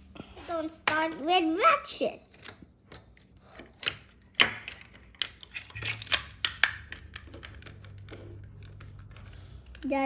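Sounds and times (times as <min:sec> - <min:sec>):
plastic toy parts clicking: 0:02.3 - 0:10.0.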